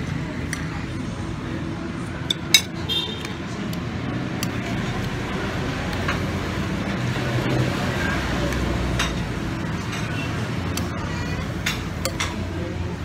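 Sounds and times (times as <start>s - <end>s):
street traffic rumble: 0.0s - 13.0s
vehicle engine hum passing: 2.7s - 13.0s.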